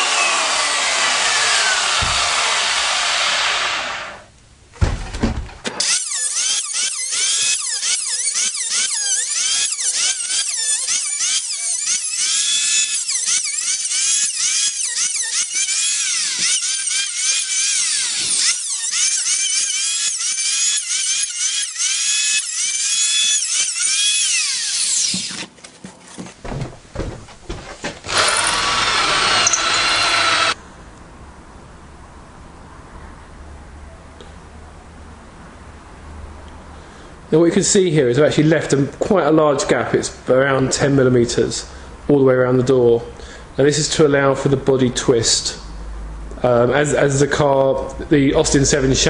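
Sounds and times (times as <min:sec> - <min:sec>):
electric hand planer whining: 0:00.0 - 0:04.2, 0:05.8 - 0:25.5, 0:28.1 - 0:30.6
sharp knock: 0:02.0 - 0:02.4.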